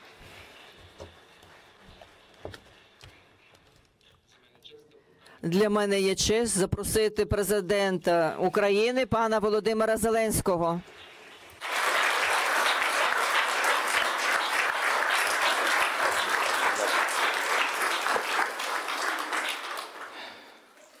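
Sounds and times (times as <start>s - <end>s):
audience applauding: 11.6s - 20.8s.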